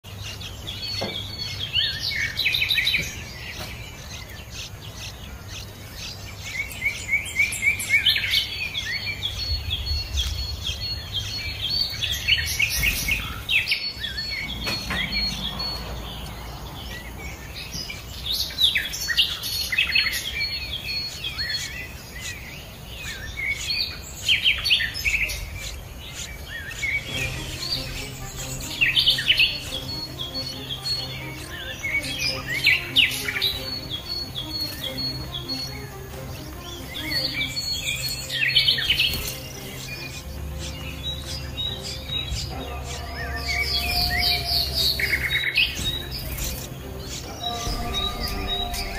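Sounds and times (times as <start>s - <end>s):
songbirds chirping: 0.0s - 48.9s.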